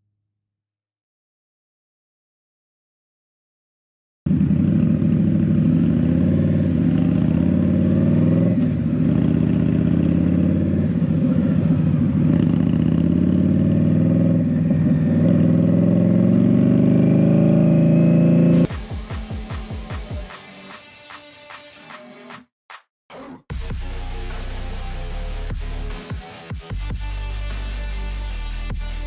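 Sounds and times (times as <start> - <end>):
motorcycle engine running: 4.3 - 20.1.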